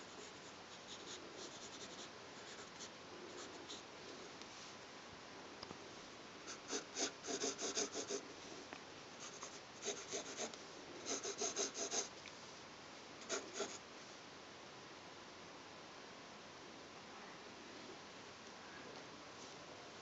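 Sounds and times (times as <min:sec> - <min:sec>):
pencil scratching on paper: 0:00.1 - 0:03.8, 0:06.5 - 0:08.2, 0:09.2 - 0:12.1, 0:13.2 - 0:13.8.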